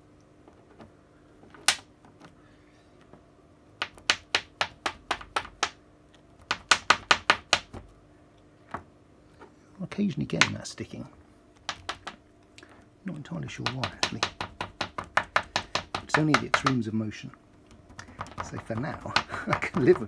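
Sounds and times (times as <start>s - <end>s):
robot hand fingers clacking: 11.6s - 12.2s.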